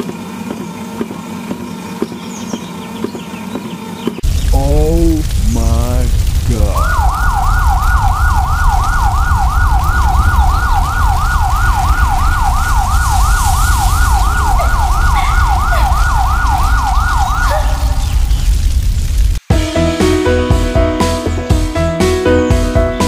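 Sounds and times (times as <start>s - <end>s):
low rumble: 4.2s - 19.4s
emergency siren yelping: 6.6s - 18.6s.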